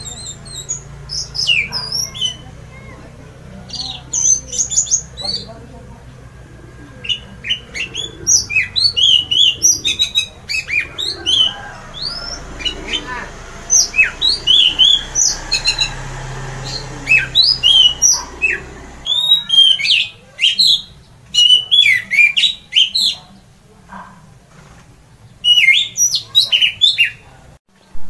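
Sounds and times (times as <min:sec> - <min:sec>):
thrush singing whistled notes: 0:00.0 - 0:02.8, 0:03.6 - 0:23.0.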